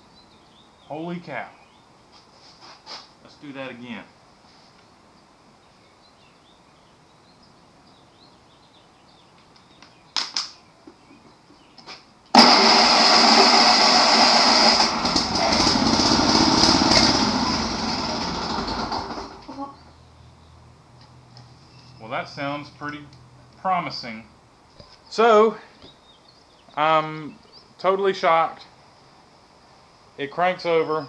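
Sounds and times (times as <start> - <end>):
short loud engine burst: 12.3 - 19.6
mower engine starting and running: 12.3 - 19.7.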